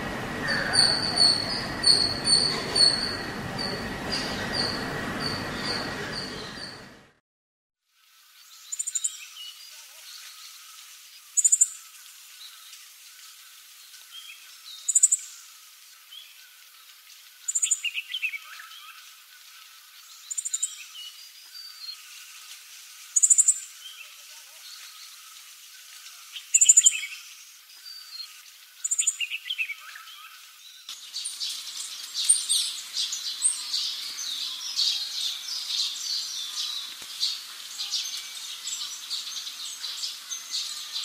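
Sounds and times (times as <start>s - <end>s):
faint steady chatter: 0.2s - 6.9s
bird singing high thin phrases: 0.4s - 6.9s.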